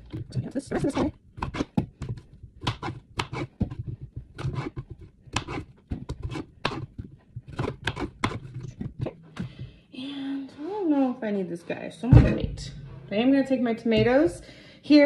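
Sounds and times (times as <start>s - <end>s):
knife chopping on cutting board: 0.9s - 3.8s, 4.4s - 8.6s.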